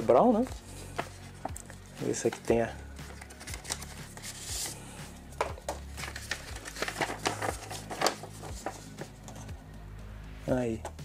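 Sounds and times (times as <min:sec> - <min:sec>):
paper rustling and crinkling: 0:00.5 - 0:04.8, 0:05.6 - 0:09.4.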